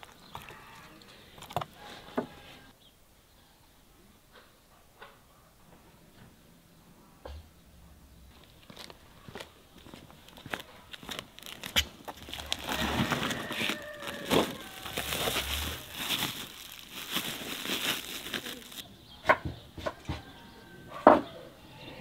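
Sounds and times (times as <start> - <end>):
footsteps: 8.3 - 18.8
plastic sacks rustling: 9.9 - 18.8.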